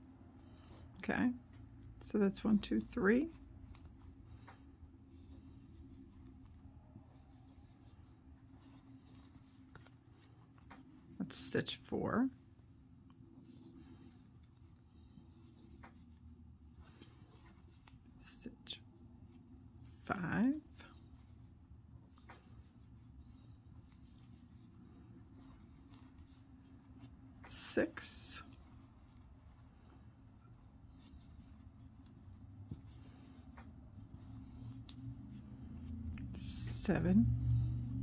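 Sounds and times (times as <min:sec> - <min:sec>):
steady low hum: 0:00.0 - 0:38.0
crochet hook working yarn: 0:30.4 - 0:38.0.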